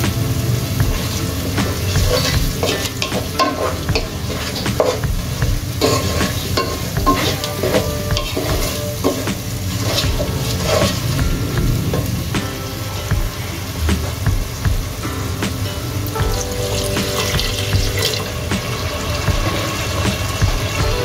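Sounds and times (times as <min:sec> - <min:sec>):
onions sizzling in oil: 0:00.0 - 0:21.0
wooden spatula scraping a pan: 0:00.9 - 0:12.3.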